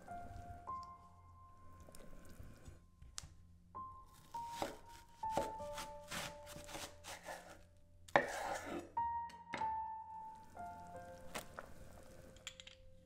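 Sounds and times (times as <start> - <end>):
soft piano music: 0.0 - 13.0
knife cutting on wooden board: 4.5 - 8.9.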